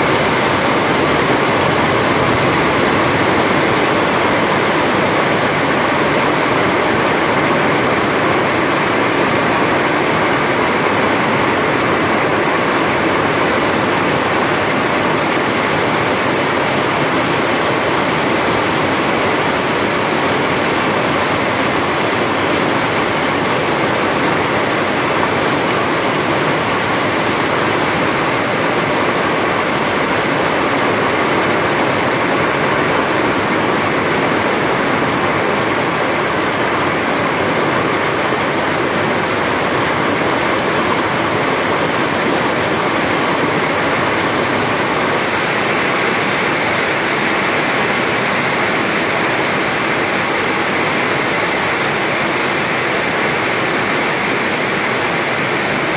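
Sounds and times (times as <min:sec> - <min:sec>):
rain falling on foliage: 0:00.0 - 0:55.9.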